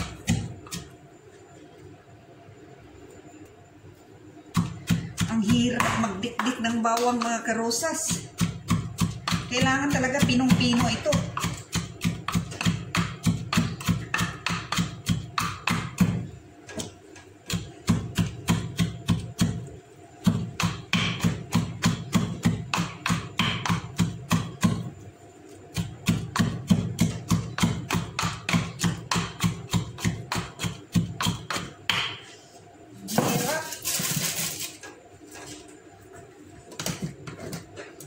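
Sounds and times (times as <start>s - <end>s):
pestle pounding in a mortar: 4.6s - 7.4s, 8.0s - 16.3s, 17.4s - 24.9s, 25.7s - 32.2s.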